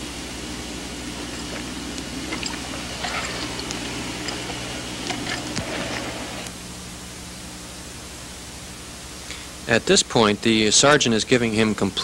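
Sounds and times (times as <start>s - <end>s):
crackles and clicks: 0.0s - 6.6s
film soundtrack hiss and hum: 0.0s - 12.0s.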